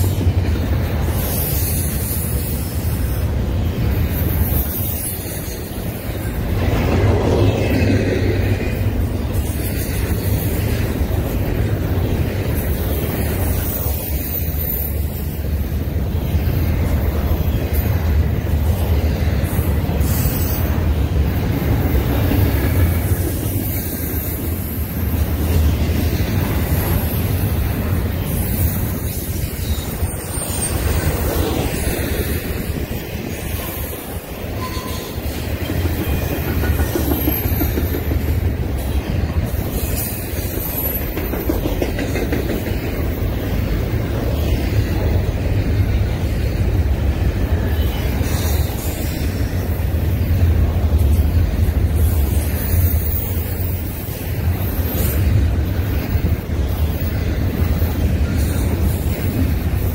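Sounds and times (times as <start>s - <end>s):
steel wheels rumbling on rail: 0.0s - 59.9s
wheel squeals: 33.4s - 38.3s.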